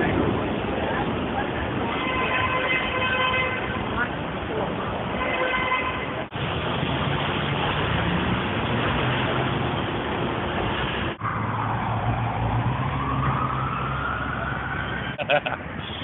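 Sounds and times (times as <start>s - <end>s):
passing cars: 0.0s - 16.0s
siren wail: 11.2s - 15.2s.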